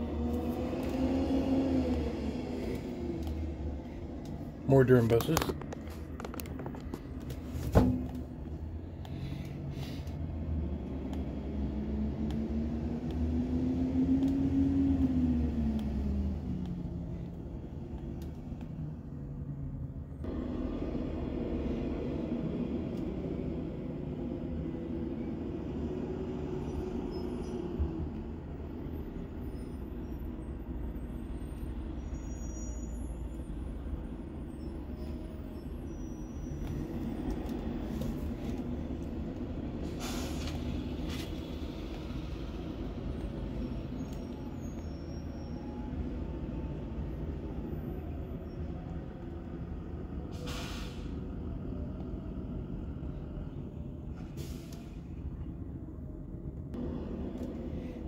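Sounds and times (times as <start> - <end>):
bus engines rumbling: 0.0 - 58.0
air-brake hisses: 39.8 - 41.3, 50.3 - 51.2, 54.2 - 55.0.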